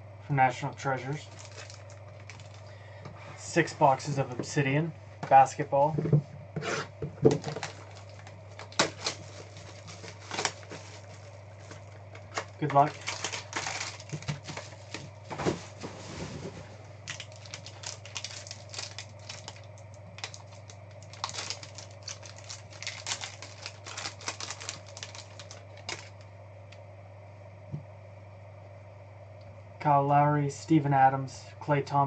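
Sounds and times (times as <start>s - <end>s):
steady low hum: 0.0s - 32.0s
plastic wrap and foil crinkling: 1.2s - 2.7s, 7.2s - 26.2s.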